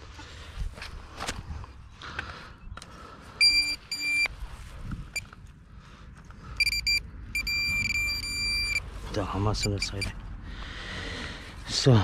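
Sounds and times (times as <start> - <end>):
metal detector pinpointer beeping: 3.4 - 4.3, 6.6 - 8.9, 9.5 - 10.2.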